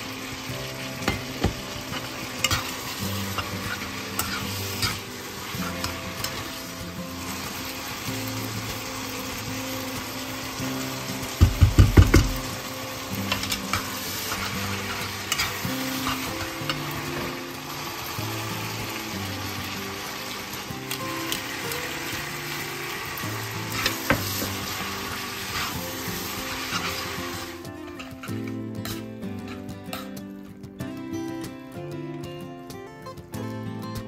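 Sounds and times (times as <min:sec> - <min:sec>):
food sizzling in frying pan: 0:00.0 - 0:30.5
metal tongs clicking against pan: 0:01.0 - 0:06.7, 0:13.2 - 0:17.4, 0:27.9 - 0:30.3.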